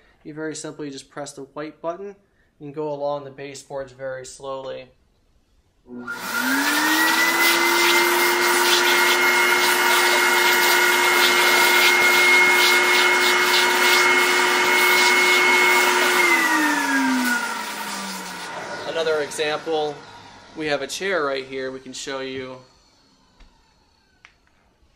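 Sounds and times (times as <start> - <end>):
vacuum motor whine: 5.9 - 24.9
crevice tool drawn along carpet: 6.4 - 20.2.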